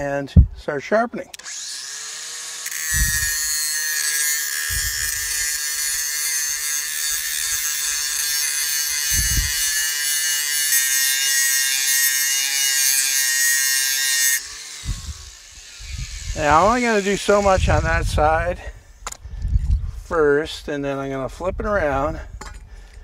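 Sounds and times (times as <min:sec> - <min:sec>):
angle grinder grinding steel: 0:01.3 - 0:19.2.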